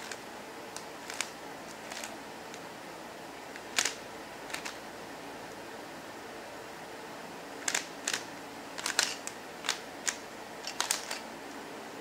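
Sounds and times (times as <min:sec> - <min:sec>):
plastic puzzle cube clacking: 0:00.8 - 0:02.6, 0:03.6 - 0:04.8, 0:07.6 - 0:11.2.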